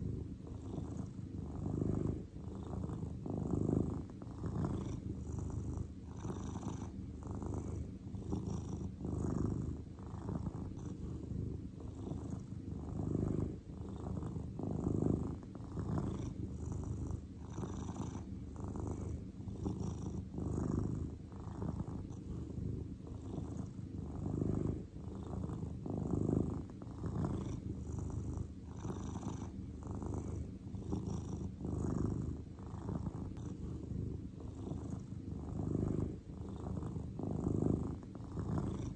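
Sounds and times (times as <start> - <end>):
cat purring: 0.0 - 38.9.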